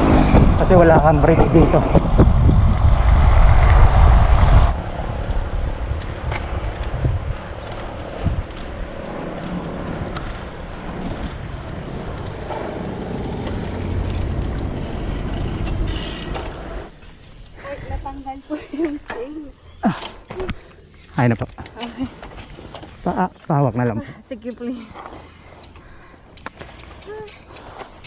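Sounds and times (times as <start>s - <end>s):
wind rushing over microphone: 0.0s - 15.9s
road noise: 0.0s - 28.0s.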